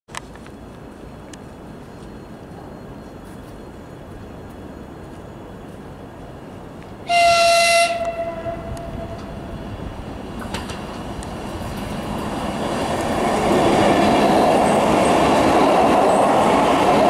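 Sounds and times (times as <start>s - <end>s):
train rumbling: 0.1s - 17.0s
train horn blast: 7.0s - 9.5s.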